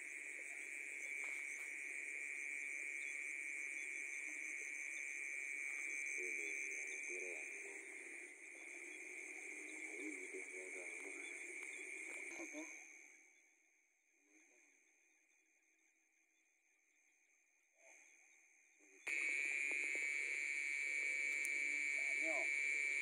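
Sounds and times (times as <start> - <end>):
frogs and insects chorus: 0.0 - 23.0
faint voices: 5.6 - 12.8, 19.1 - 23.0.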